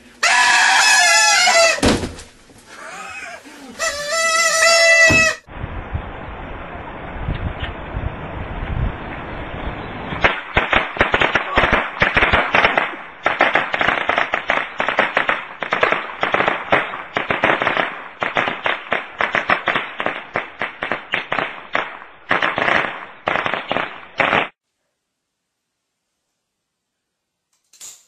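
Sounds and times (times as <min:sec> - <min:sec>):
firecrackers crackling: 0:10.2 - 0:24.6.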